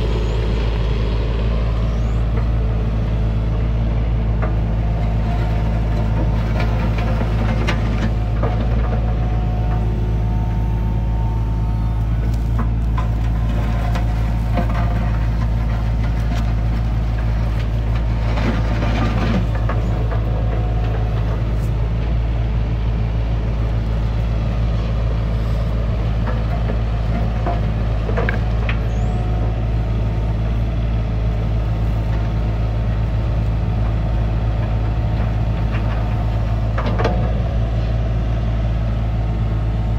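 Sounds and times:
excavator diesel engine: 0:00.0 - 0:39.9
bucket scraping soil and stones: 0:12.1 - 0:21.8.

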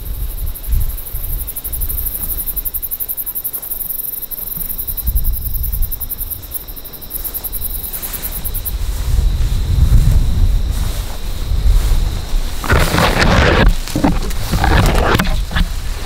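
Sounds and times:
wind rumbling on microphone: 0:00.0 - 0:02.7, 0:05.0 - 0:06.6, 0:07.6 - 0:16.0
insects trilling: 0:00.0 - 0:16.0.

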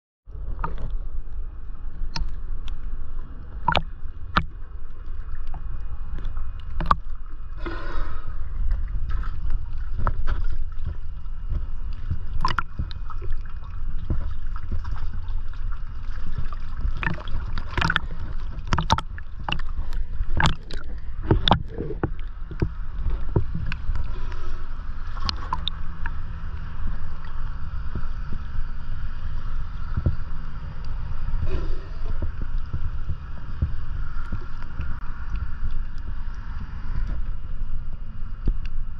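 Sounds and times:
low rumble: 0:00.3 - 0:38.9
water sloshing and lapping: 0:00.3 - 0:38.9
water splashes and knocks: 0:00.4 - 0:01.1, 0:03.6 - 0:28.5, 0:29.6 - 0:37.4.

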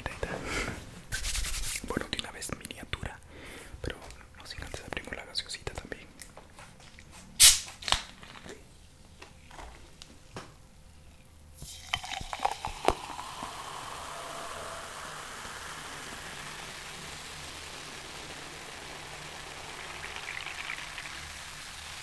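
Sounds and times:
soda pouring into glass: 0:11.6 - 0:22.0.

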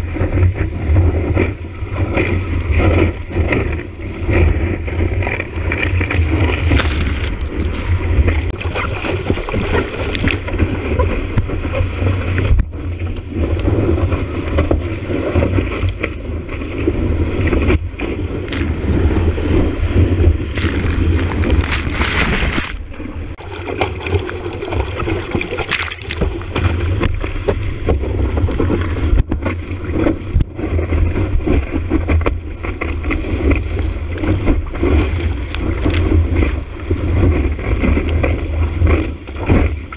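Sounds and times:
wind buffeting microphone: 0:00.0 - 0:39.9
whitewater rushing and splashing: 0:05.9 - 0:10.7, 0:18.3 - 0:27.4, 0:32.6 - 0:38.2.

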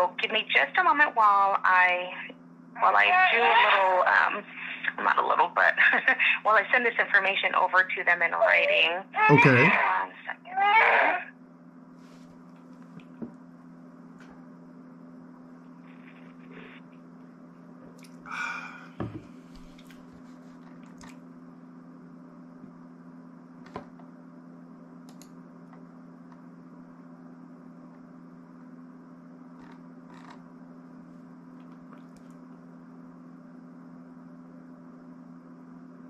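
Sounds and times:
low electrical hum: 0:00.0 - 0:36.0
knock: 0:19.0 - 0:19.3.

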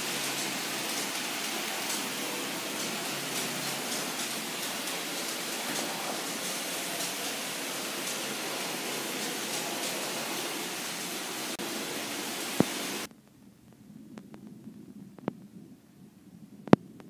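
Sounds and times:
model train running on track: 0:00.0 - 0:13.1.

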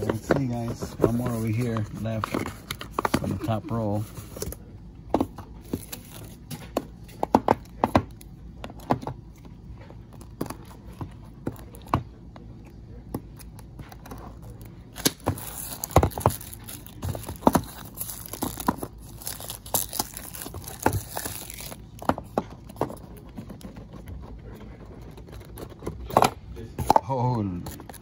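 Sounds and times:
cardboard boxes tapping and scraping: 0:00.0 - 0:04.5, 0:15.0 - 0:27.2
plastic wrap crinkling and tearing: 0:15.0 - 0:21.9.

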